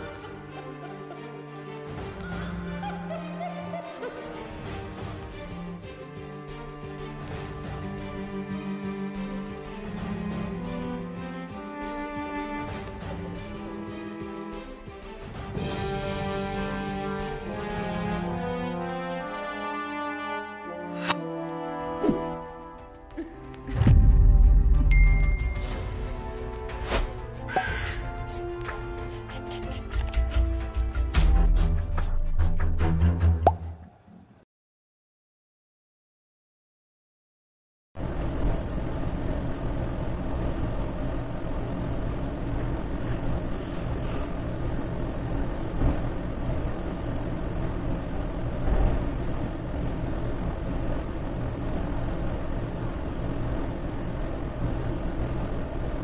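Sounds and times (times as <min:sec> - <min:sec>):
background music of held notes: 0:00.0 - 0:24.3.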